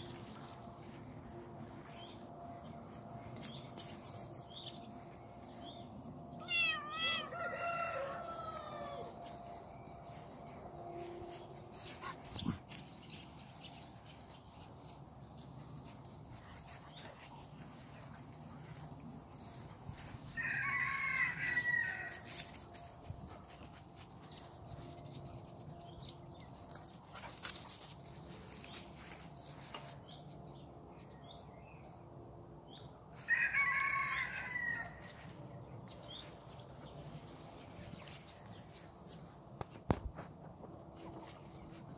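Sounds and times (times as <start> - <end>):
rooster crowing: 6.7 - 9.2, 20.3 - 22.4, 33.2 - 35.2.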